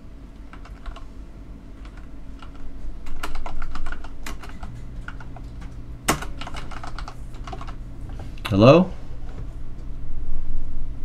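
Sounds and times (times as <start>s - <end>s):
computer keyboard typing: 0.3s - 1.1s, 1.8s - 7.8s.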